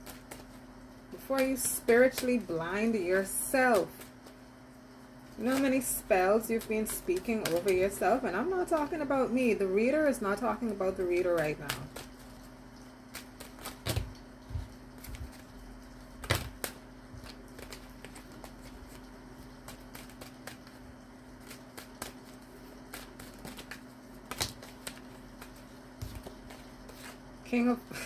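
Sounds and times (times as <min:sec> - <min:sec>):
cards being shuffled: 0:00.0 - 0:00.6, 0:05.4 - 0:09.1, 0:10.9 - 0:27.6
faint steady hum: 0:00.0 - 0:28.0.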